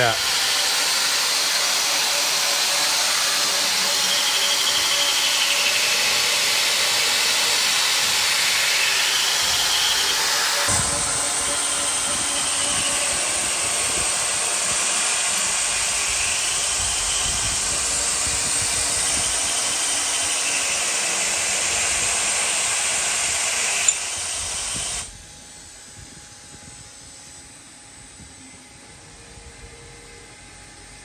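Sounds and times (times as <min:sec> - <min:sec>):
low machine hum: 0:07.2 - 0:31.0.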